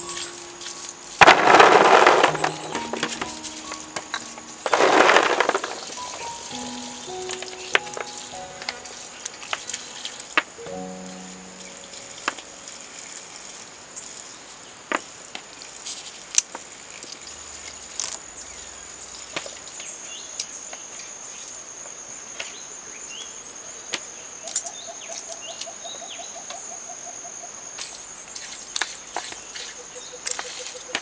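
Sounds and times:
bird chirps: 0.0 - 1.2, 2.2 - 13.3
bird trill: 0.0 - 1.2, 2.0 - 13.3
high-pitched insect drone: 0.0 - 14.4.

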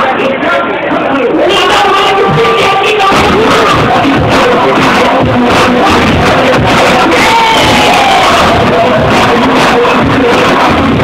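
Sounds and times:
loud dance music: 0.0 - 11.0.

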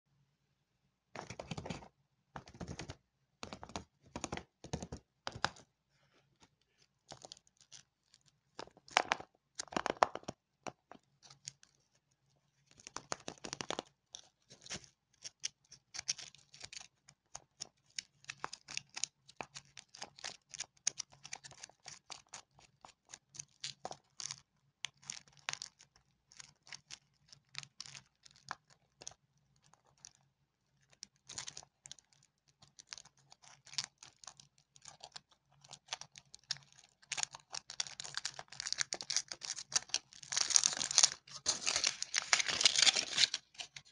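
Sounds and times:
foil wrapper crinkling and tearing: 32.8 - 43.9.

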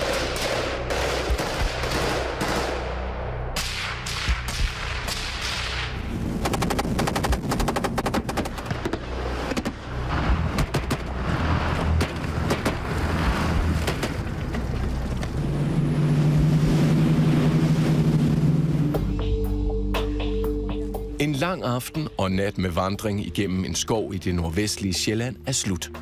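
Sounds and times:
boat engine droning: 8.5 - 23.8
rushing water and spray: 11.1 - 19.1.

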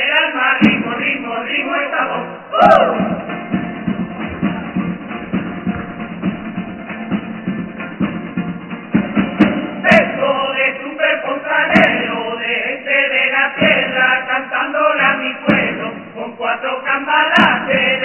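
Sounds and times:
men singing together: 0.0 - 3.2, 9.8 - 18.0
acoustic guitar: 2.6 - 10.2.

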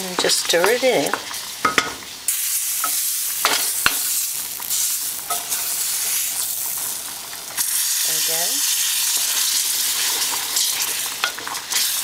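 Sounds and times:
wooden spoon knocking pot: 0.2 - 2.0.

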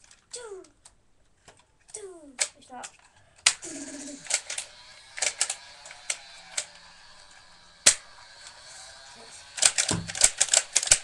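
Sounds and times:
toy blaster plastic clicks: 2.3 - 11.0.

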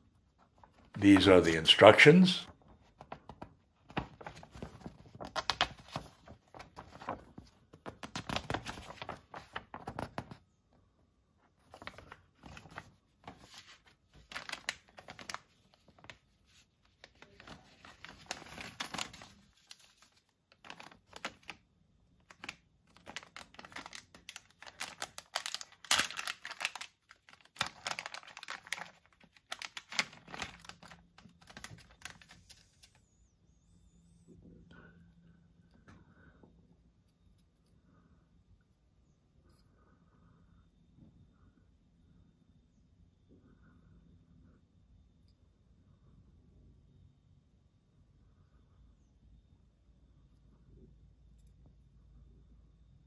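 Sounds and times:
paper pages rustling: 0.6 - 10.4, 11.5 - 21.6, 22.2 - 33.0
plastic bag crinkling: 11.7 - 21.6, 22.2 - 33.0.

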